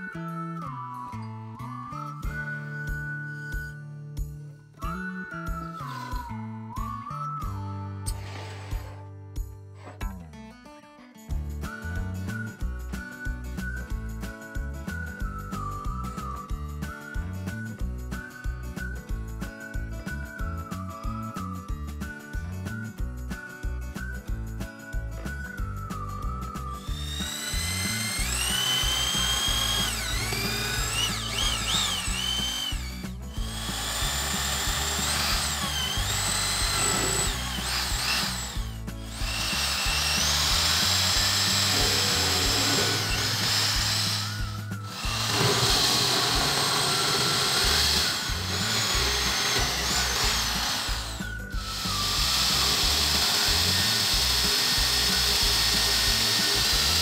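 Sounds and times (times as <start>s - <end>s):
drill press boring into wood: 26.7s - 57.0s.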